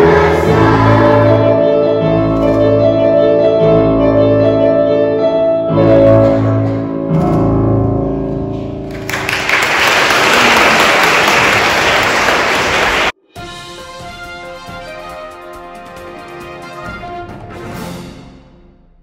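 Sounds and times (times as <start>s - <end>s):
light theme music: 0.0s - 9.2s, 13.2s - 19.0s
audience applause: 8.9s - 13.2s.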